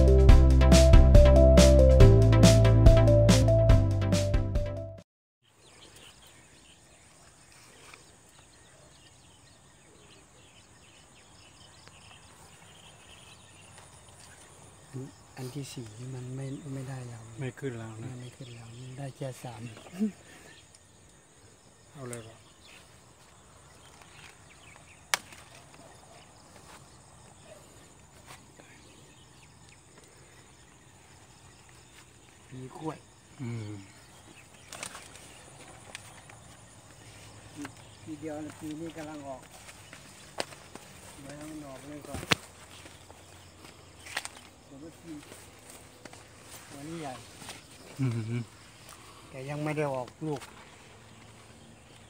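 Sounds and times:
small birds chirping: 5.4 - 52.0
stalk snapping: 23.9 - 25.8, 34.5 - 36.4, 40.3 - 43.0, 44.0 - 44.6.

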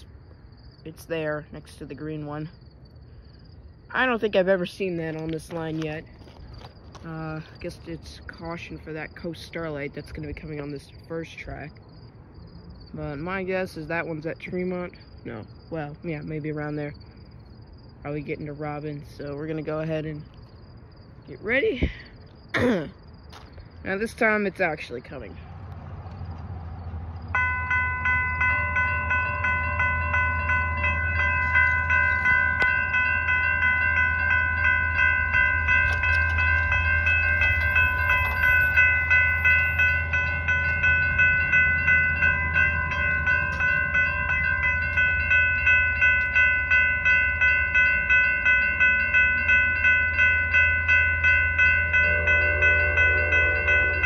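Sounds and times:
railroad crossing bells ringing: 3.9 - 11.7, 13.0 - 17.1, 26.8 - 54.0.

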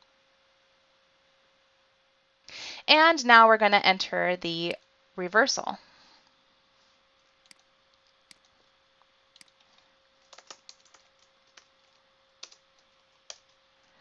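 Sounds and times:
faint steady hum: 0.0 - 14.0
typing on keyboard: 9.4 - 12.6, 13.2 - 13.6.

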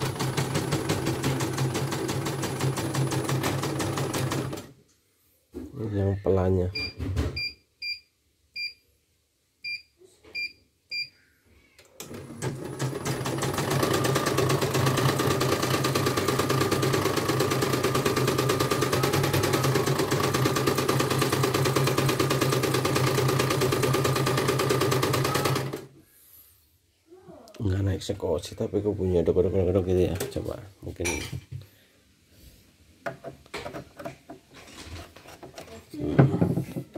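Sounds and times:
embroidery machine stitching: 0.0 - 4.7, 12.0 - 25.9.

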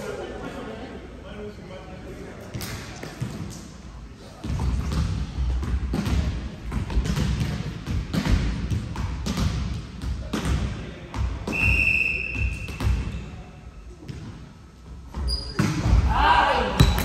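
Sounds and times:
basketball bouncing on floor: 4.4 - 11.5
shrill whistle blast: 11.5 - 12.8.

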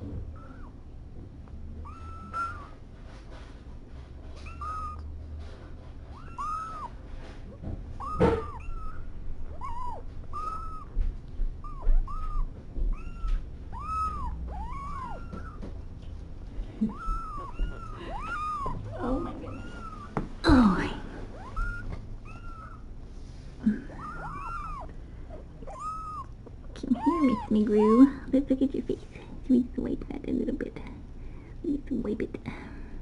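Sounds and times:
kittens mewing: 0.2 - 0.8, 1.8 - 2.8, 4.4 - 5.2, 6.1 - 15.9, 16.6 - 23.0, 23.6 - 28.3.

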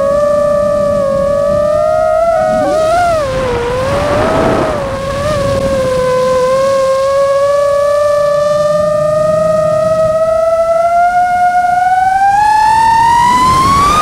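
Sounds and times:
drone motors whining: 0.0 - 14.0
rush of air: 2.3 - 6.2.

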